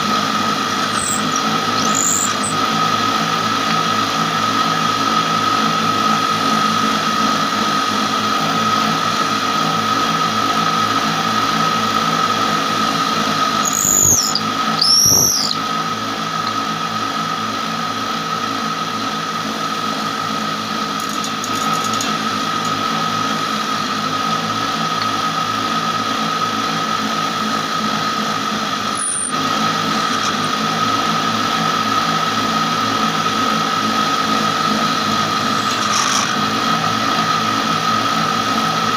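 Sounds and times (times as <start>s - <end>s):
spinning spindle whining: 0.0s - 38.9s
wood squealing on spindle: 0.6s - 3.2s, 13.6s - 15.7s, 28.8s - 30.9s, 35.4s - 36.5s.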